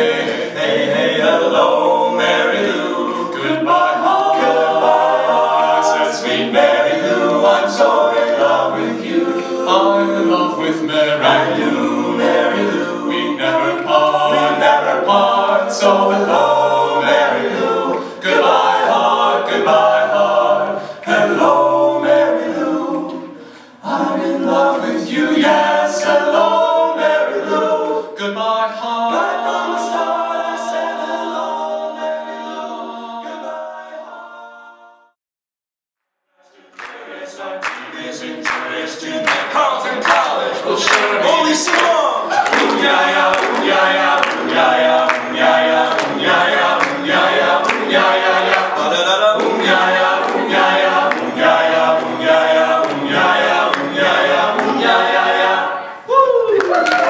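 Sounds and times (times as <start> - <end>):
a cappella group singing: 0.0 - 35.2, 36.4 - 56.1.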